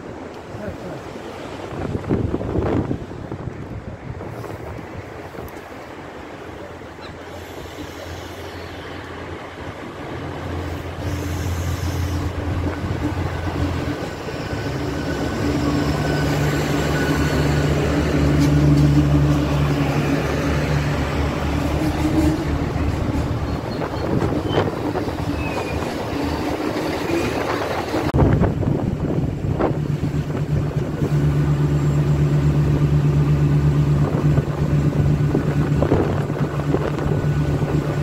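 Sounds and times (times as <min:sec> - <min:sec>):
diesel train engines droning: 0:02.7 - 0:38.0.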